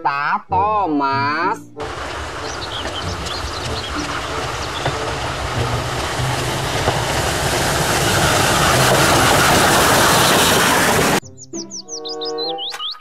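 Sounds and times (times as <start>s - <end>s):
steam train passing: 1.8s - 11.2s.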